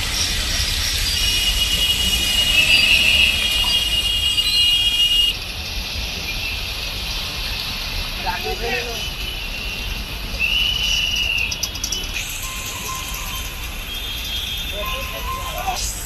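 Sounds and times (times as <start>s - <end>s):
high multi-tone whine: 0.0s - 5.4s, 12.0s - 16.0s
heavy rain: 0.0s - 10.3s
traffic noise: 0.0s - 16.0s.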